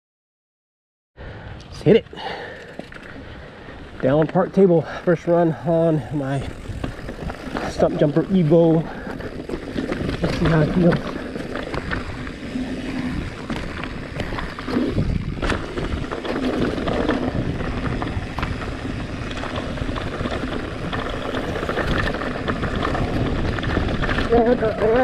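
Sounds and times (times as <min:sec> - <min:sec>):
bike clicks and rattles: 0:02.1 - 0:25.0
tyres over loose rock: 0:03.9 - 0:25.0
wind rumble on microphone: 0:06.1 - 0:25.0.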